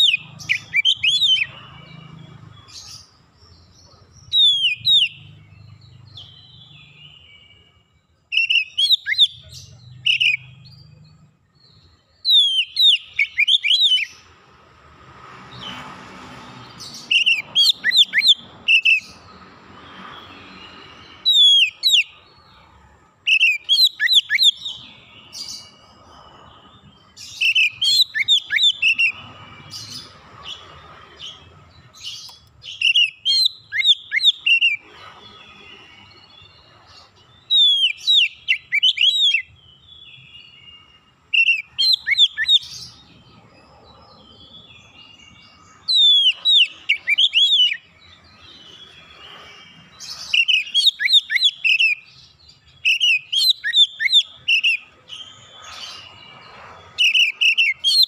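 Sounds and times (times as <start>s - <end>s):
bird singing sharp whistles: 4.3s - 5.4s, 8.3s - 10.8s, 12.2s - 14.2s, 16.9s - 19.2s, 19.9s - 22.2s, 23.3s - 25.7s, 27.2s - 30.6s, 32.0s - 34.9s, 37.5s - 43.0s, 45.8s - 56.1s, 57.0s - 58.0s.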